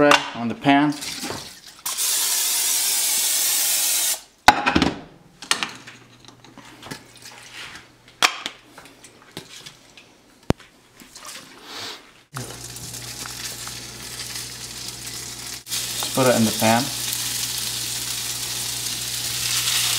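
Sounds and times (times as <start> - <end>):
cooking spray hissing onto pan: 1.9 - 4.2, 12.4 - 19.9.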